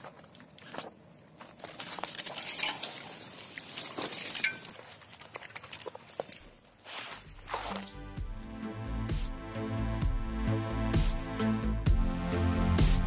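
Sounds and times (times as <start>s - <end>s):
footsteps: 0.0s - 8.0s
bike swishing through grass: 6.8s - 8.0s.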